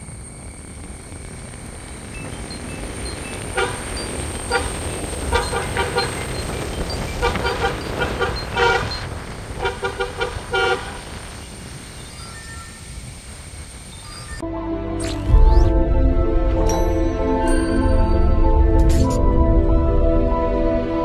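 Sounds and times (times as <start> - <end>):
road and engine rumble: 0.0 - 14.4.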